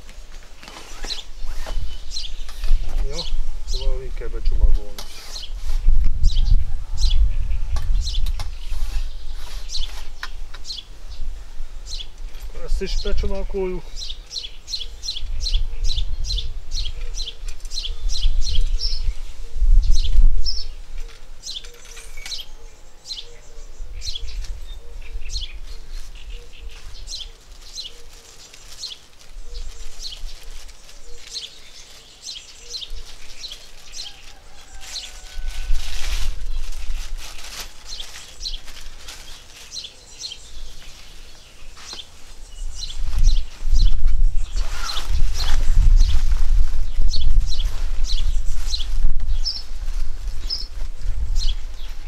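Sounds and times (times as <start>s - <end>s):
low rumbling on microphone: 5.5s - 13.2s, 14.8s - 21.0s, 42.5s - 52.0s.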